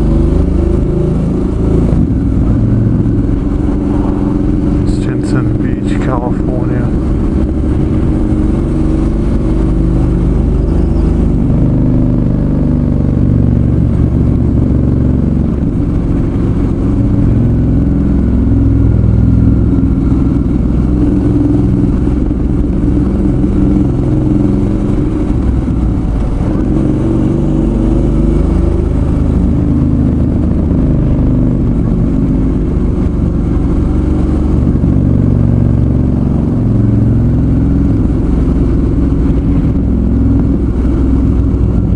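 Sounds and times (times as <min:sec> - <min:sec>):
motorcycle engine running: 0:00.0 - 0:41.9.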